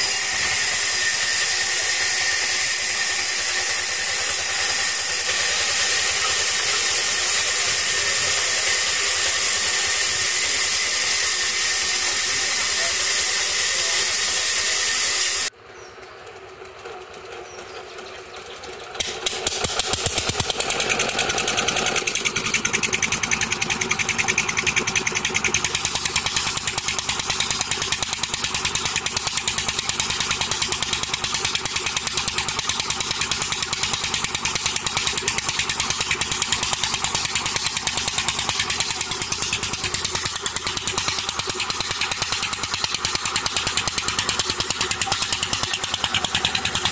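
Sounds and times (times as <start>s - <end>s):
stationary engine knocking: 0.0s - 15.2s, 16.2s - 46.9s
loud hiss: 0.0s - 15.5s.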